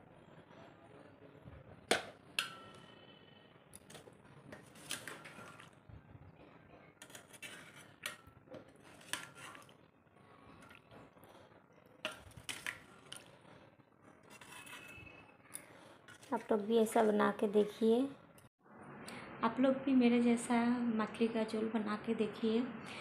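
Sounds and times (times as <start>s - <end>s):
spoon clinking against pot and bowl: 2.4s - 3.0s.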